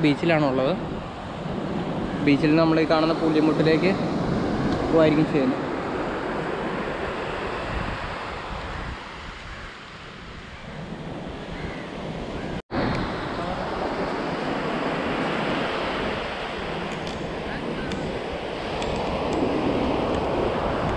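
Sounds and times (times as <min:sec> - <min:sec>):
wind on microphone: 0:00.0 - 0:20.9
surf washing onto beach: 0:12.7 - 0:20.9.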